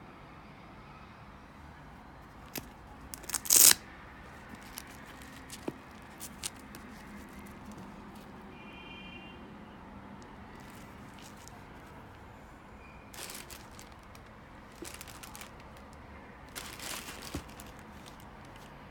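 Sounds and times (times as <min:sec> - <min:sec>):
light clicks and rustles: 0:04.4 - 0:08.4.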